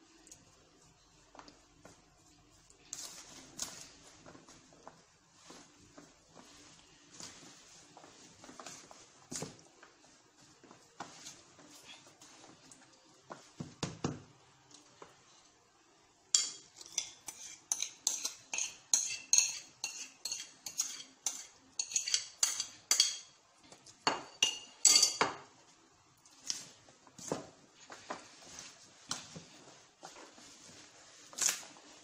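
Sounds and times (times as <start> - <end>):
metal utensil clinking on bowl: 16.4 - 23.3, 24.1 - 25.3.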